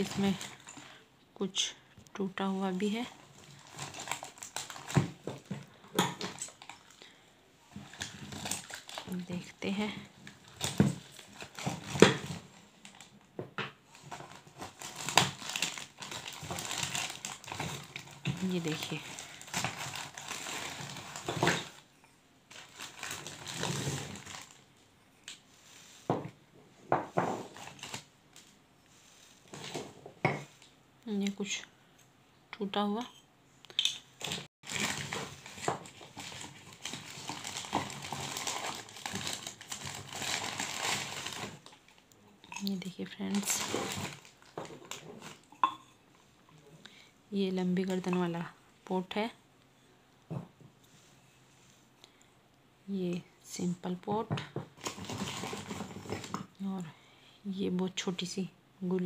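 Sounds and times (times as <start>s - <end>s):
plastic bag crinkling: 0.0s - 1.0s, 2.8s - 7.2s, 7.8s - 13.2s, 13.9s - 21.8s, 22.5s - 24.7s, 27.4s - 28.5s, 34.2s - 45.5s, 54.8s - 56.5s.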